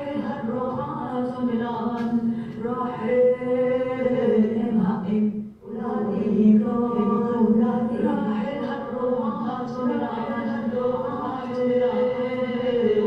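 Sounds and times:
voices singing slow chant: 0.0s - 13.0s.

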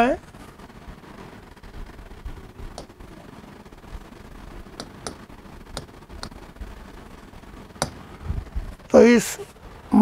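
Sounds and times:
low room hum: 0.0s - 10.0s
chalk tapping on blackboard: 4.8s - 5.2s, 7.8s - 8.0s.

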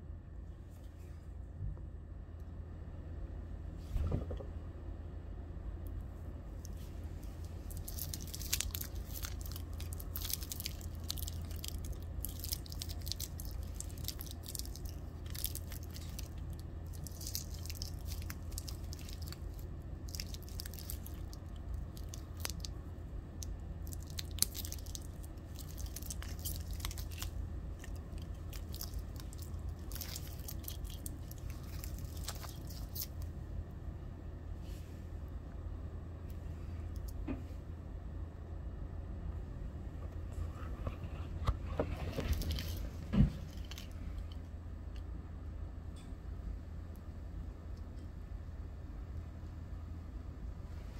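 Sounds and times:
steady low hum: 0.0s - 50.9s
crackling handling rustles: 6.6s - 22.7s, 23.8s - 33.3s, 40.6s - 44.4s.

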